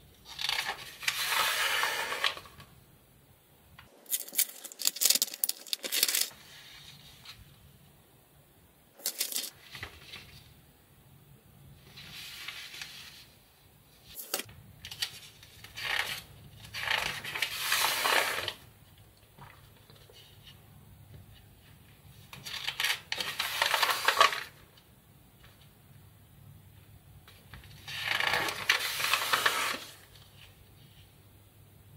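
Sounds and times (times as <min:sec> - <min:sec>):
magazine pages turning: 0:00.3 - 0:02.6, 0:22.4 - 0:24.5, 0:27.4 - 0:30.6.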